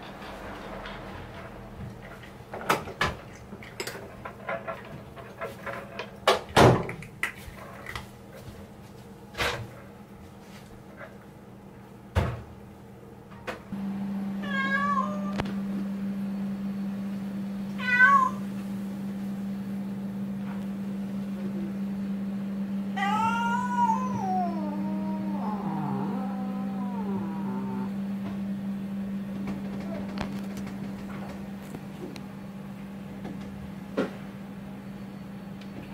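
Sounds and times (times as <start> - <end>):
cat meowing: 14.4 - 15.4, 17.8 - 18.4, 23.0 - 27.9
steady low hum: 18.4 - 35.9.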